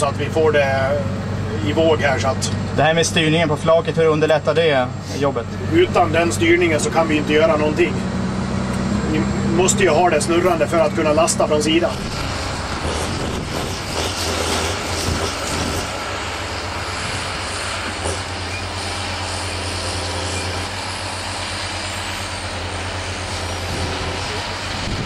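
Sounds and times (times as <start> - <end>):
diesel engine running: 0.0 - 25.0
hydraulic crane loading logs: 0.0 - 25.0.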